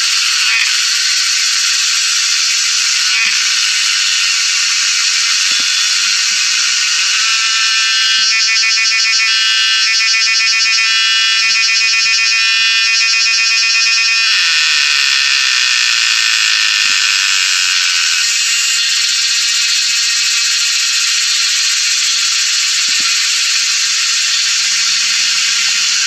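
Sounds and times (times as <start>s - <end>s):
cicada singing: 0.0s - 26.0s.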